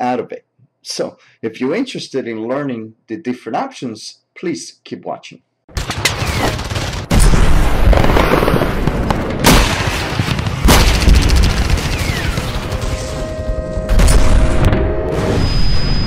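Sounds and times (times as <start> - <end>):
gunfire: 5.7 - 13.2
explosion booms: 5.9 - 13.2, 13.9 - 16.0.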